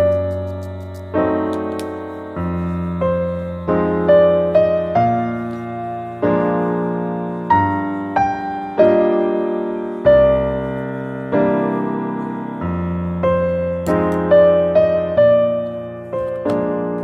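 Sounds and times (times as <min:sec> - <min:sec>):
gentle piano piece: 0:00.0 - 0:17.0.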